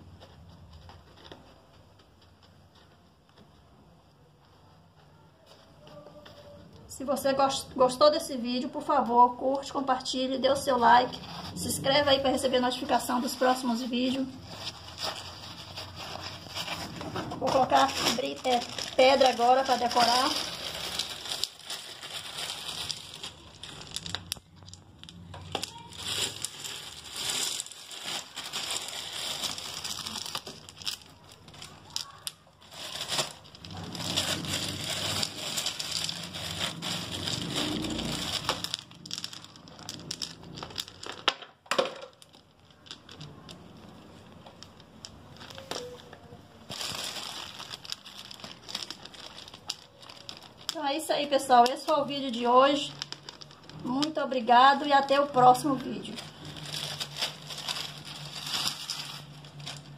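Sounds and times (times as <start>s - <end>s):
crunching and rustling: 9.6s - 41.4s, 42.1s - 59.9s
pebbles clicking together: 34.4s - 46.1s.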